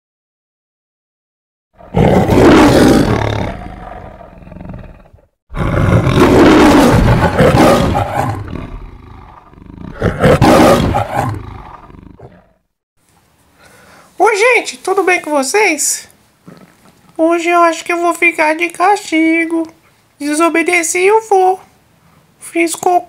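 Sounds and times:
lion roaring: 0:01.8 - 0:12.6.

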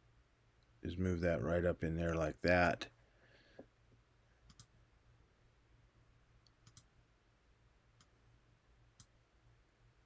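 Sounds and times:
faint computer mouse clicks: 0:04.4 - 0:04.7, 0:06.4 - 0:06.9, 0:08.0 - 0:08.2.

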